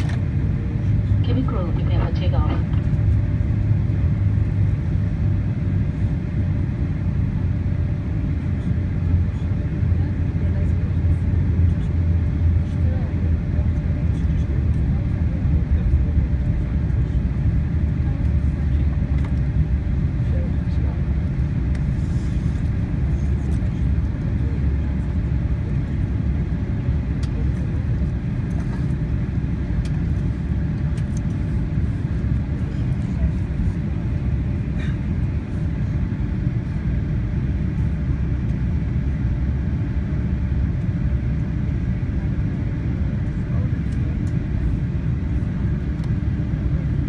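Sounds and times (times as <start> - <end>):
faint steady hum: 0.0 - 5.2
low rumble of aircraft engines: 0.0 - 47.0.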